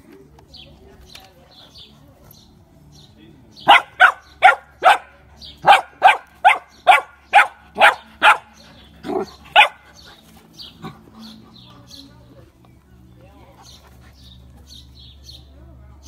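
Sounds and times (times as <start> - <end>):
puppy barking: 3.6 - 9.9.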